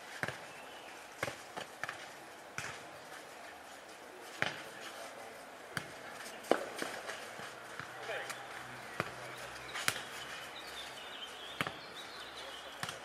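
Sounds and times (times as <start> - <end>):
ball slapping on hard court: 0.1 - 0.5, 1.2 - 2.8, 4.4 - 4.7, 5.7 - 8.4, 9.8 - 10.2, 11.5 - 11.9, 12.7 - 13.0.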